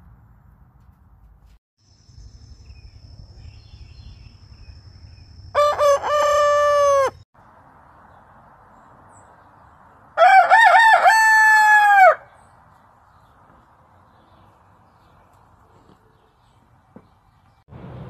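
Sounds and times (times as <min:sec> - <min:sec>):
roosters crowing: 0:05.5 - 0:07.2, 0:10.2 - 0:12.4.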